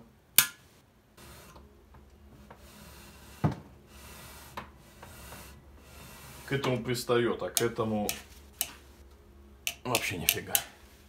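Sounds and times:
faint rubbing: 2.4 - 7.0
sharp metallic clicks: 7.5 - 8.8, 9.6 - 10.7.

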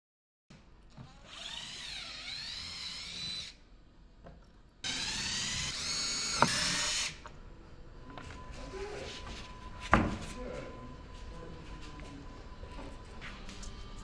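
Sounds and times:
cordless drill whining: 0.9 - 3.6, 4.8 - 7.2.

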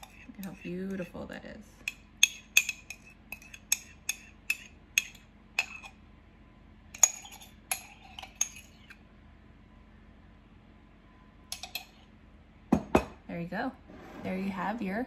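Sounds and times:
metal spoon clinking on ceramic mug: 1.9 - 5.9.

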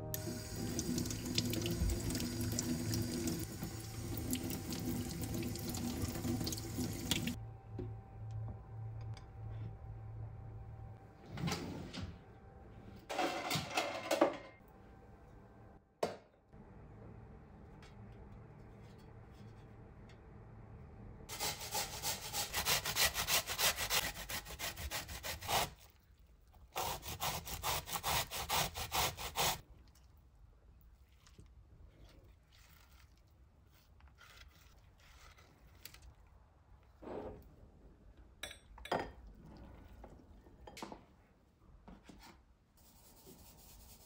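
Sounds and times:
zucchini rasping on a grater: 21.3 - 26.0, 26.7 - 29.6, 32.5 - 36.0.

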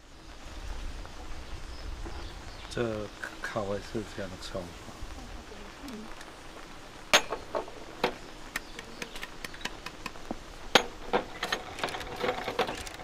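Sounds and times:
sharp clicks and light taps: 8.0 - 10.9.

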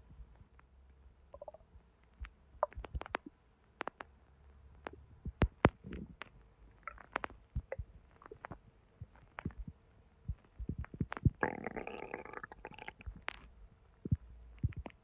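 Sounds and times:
stomach pops and clicks: 1.3 - 4.2, 4.8 - 15.0
bubbling stomach gurgle: 1.4 - 1.6, 6.8 - 8.5, 10.7 - 13.4.

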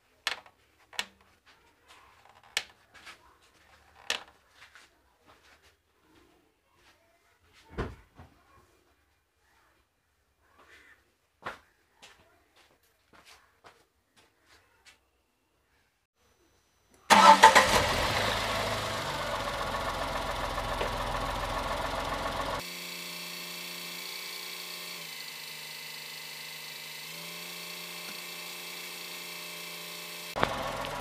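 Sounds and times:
car engine cranking and idling: 17.1 - 22.6, 24.9 - 31.0.

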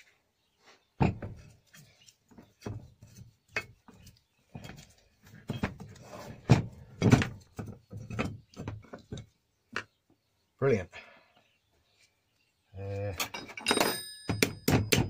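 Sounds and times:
metal parts clunking on workbench: 13.2 - 15.0.

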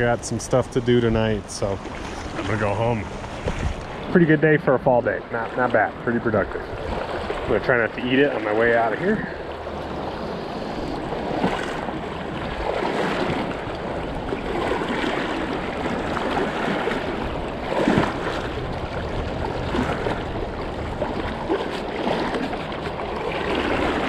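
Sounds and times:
legs wading through water: 0.0 - 24.0
water splash: 1.6 - 4.2, 11.2 - 24.0.

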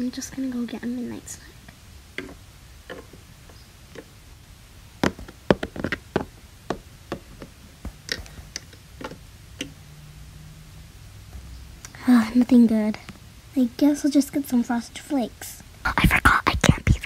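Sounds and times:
plastic toy tapping on plastic: 2.2 - 3.2, 5.0 - 9.8.

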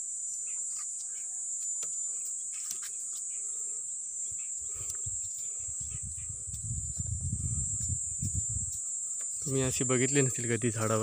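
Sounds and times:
insects shrilling: 0.0 - 11.0.

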